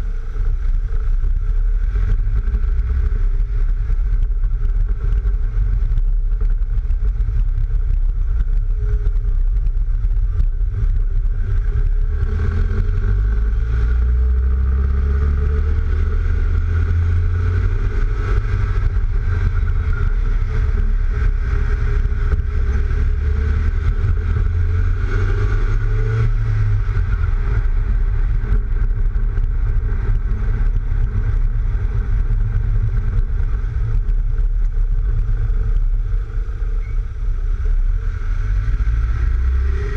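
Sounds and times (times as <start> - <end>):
car engine: 0.0 - 39.9
road noise: 0.0 - 39.9.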